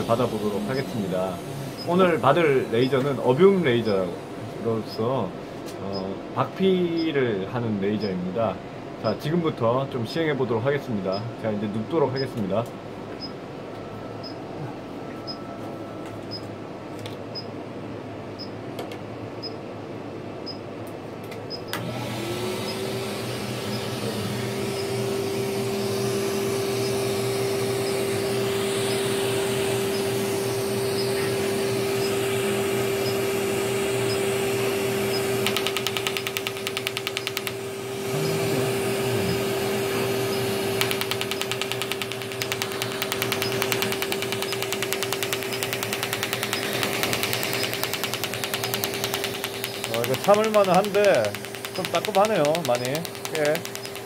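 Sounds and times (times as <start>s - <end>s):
machine motor humming: 21.7s - 54.0s
laser ticking pulses: 35.1s - 39.4s, 40.3s - 54.0s.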